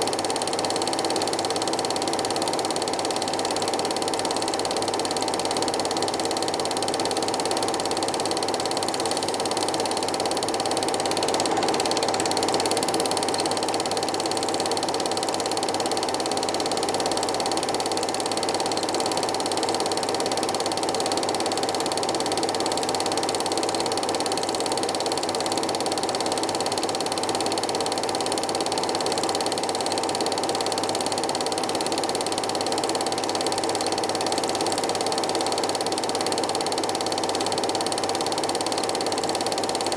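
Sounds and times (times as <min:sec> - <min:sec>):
film projector whirring and clattering: 0:00.0 - 0:39.9.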